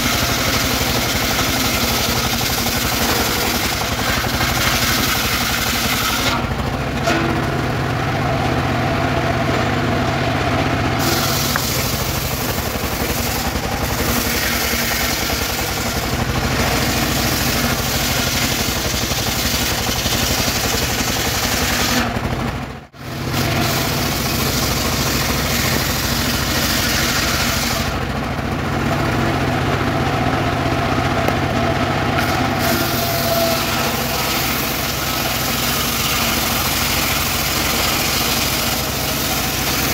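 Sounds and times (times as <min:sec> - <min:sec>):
engine running under load: 0:00.0 - 0:39.9
saw blade cutting hiss: 0:11.0 - 0:22.1, 0:23.4 - 0:28.0, 0:32.2 - 0:39.9.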